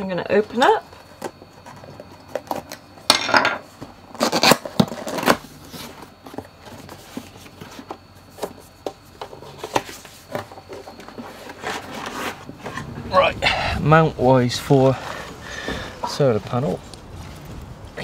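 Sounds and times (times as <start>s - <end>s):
cardboard scraping and rustling: 3.7s - 13.2s.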